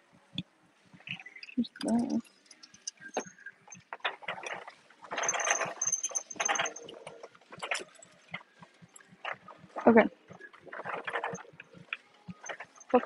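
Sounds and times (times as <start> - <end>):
shopping cart rattling: 4.3 - 7.9.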